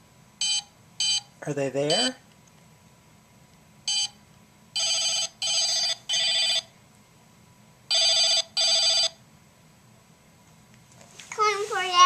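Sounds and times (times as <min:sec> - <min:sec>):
toy phone electronic ringing: 0:03.9 - 0:04.1, 0:04.8 - 0:06.7, 0:07.9 - 0:09.2.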